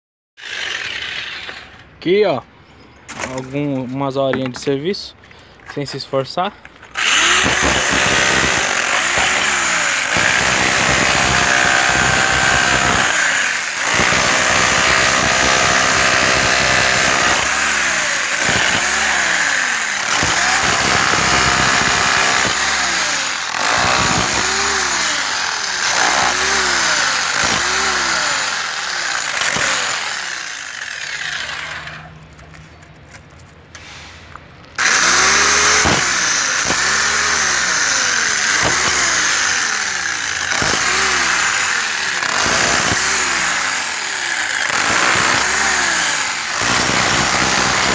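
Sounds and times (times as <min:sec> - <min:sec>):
rotary hammer chiselling concrete: 0:07.0 - 0:32.0, 0:34.8 - 0:47.9.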